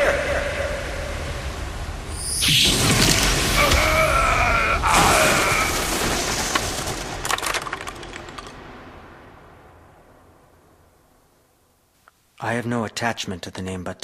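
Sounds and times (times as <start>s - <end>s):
sharp cracks and clatters: 5.3s - 9.1s.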